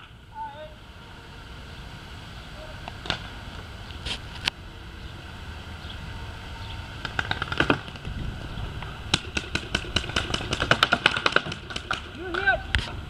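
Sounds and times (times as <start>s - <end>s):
steady low rumble: 0.0s - 13.0s
paintball gunfire pops: 9.1s - 12.5s.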